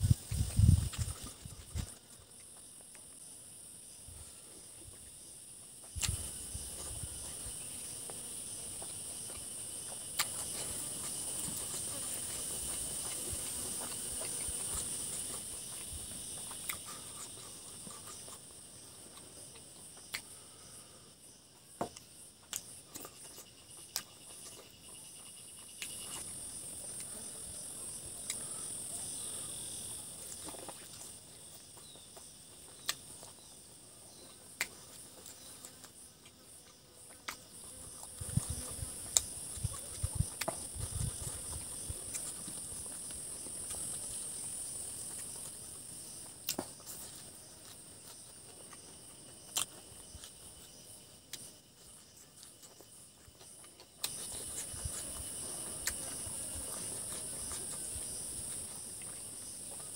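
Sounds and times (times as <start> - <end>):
insects chorus: 0.0 - 59.9
eating with hands clicks: 5.8 - 6.4, 8.8 - 18.5, 19.1 - 20.5, 21.9 - 24.7, 25.6 - 27.2, 31.8 - 33.4, 34.3 - 45.6, 46.3 - 51.5, 52.3 - 59.9
chewing: 5.8 - 20.6, 22.0 - 59.9.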